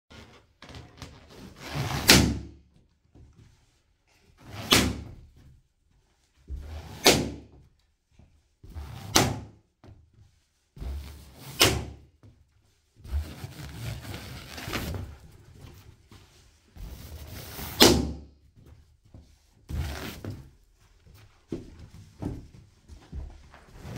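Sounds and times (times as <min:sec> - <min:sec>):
balloon squashing under boot: 0:10.8 - 0:12.1, 0:13.0 - 0:15.2
balloons bursting: 0:13.1 - 0:15.0.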